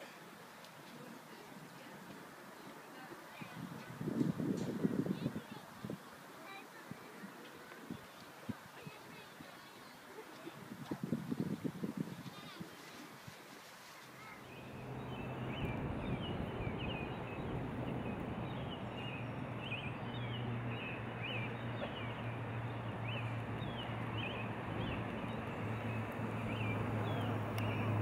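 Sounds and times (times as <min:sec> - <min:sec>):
broad hiss: 0:11.3 - 0:14.6
small birds chirping: 0:13.8 - 0:28.0
low hum: 0:14.6 - 0:28.0.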